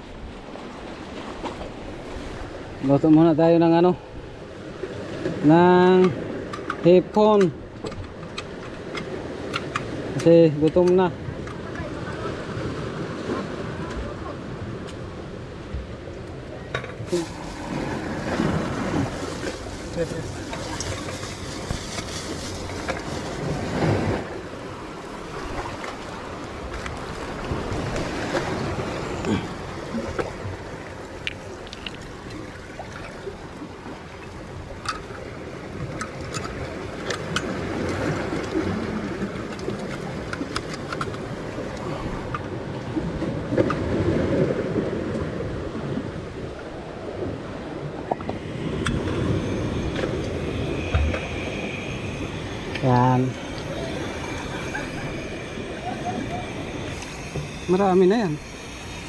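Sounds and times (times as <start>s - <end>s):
sea waves washing on shore: 0.0s - 59.0s
wind on microphone: 11.1s - 59.0s.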